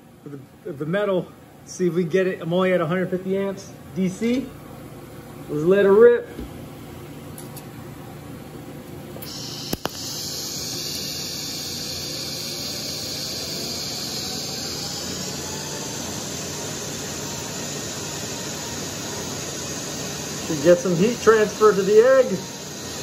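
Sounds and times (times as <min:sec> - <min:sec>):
sharp click: 0:09.2 - 0:10.0
welding arc hissing: 0:09.2 - 0:23.0.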